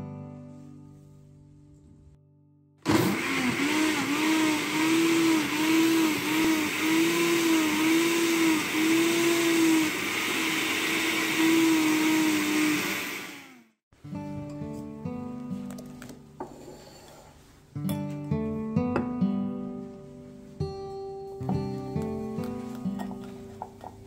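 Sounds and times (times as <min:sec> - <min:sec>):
blender motor blending: 0:02.8 - 0:13.8.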